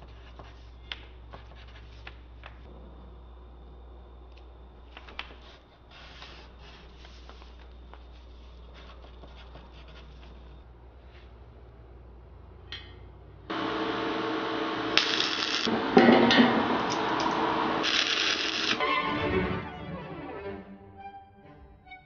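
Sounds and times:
music: 0:18.8 - 0:22.0.

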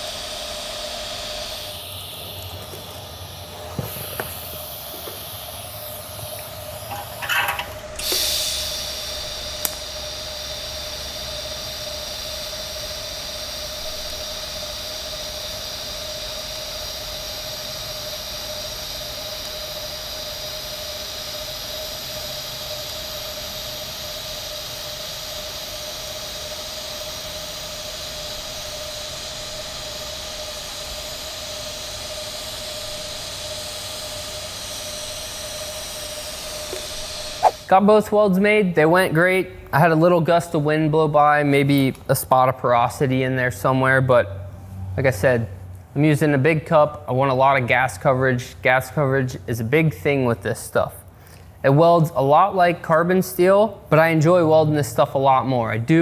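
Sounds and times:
welding arc hissing: 0:00.0 - 0:39.6
constant whine: 0:00.0 - 0:39.7
arc crackles: 0:00.5 - 0:08.0, 0:17.6 - 0:23.2, 0:24.8 - 0:37.8.

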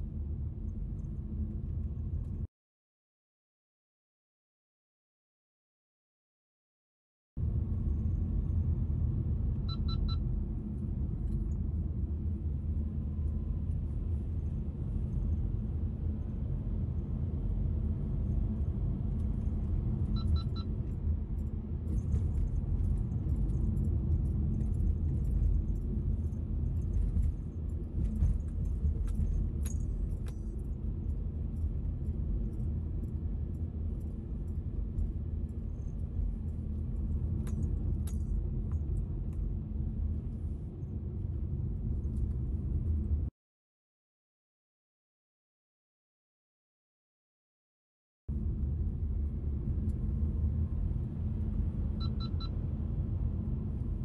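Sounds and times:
car engine and tyre rumble: 0:00.0 - 0:02.5, 0:07.4 - 0:43.3, 0:48.3 - 0:54.0
high double beeps: 0:09.7 - 0:10.2, 0:52.0 - 0:52.6.

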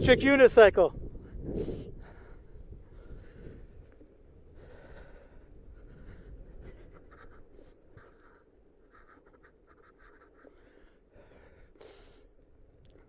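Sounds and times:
low rumble: 0:00.0 - 0:07.5.

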